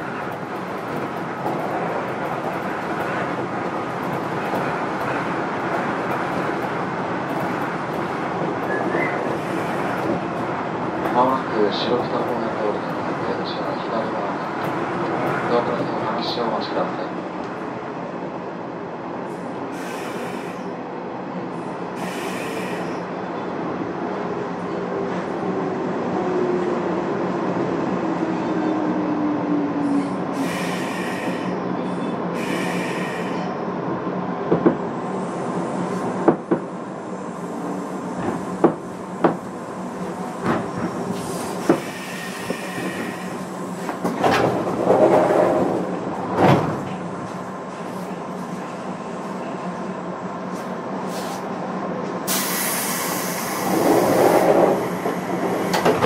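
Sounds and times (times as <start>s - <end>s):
electric train hum and rumble: 0.0s - 56.0s.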